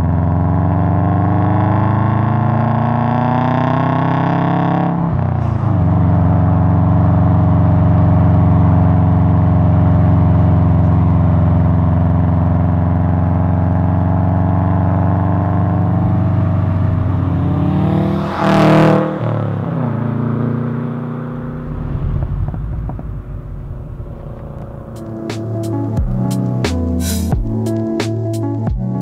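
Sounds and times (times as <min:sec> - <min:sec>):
car engine rumbling: 0:04.3 - 0:29.0
car passing by: 0:15.8 - 0:25.4.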